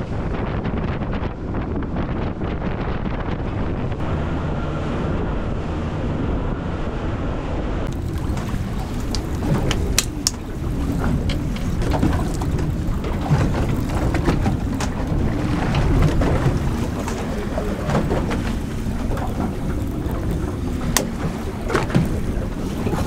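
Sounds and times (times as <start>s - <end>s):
wind buffeting microphone: 0.0s - 23.0s
water slapping boat hull: 7.8s - 23.0s
sharp clicks and knocks: 7.9s - 10.4s, 11.0s - 17.3s.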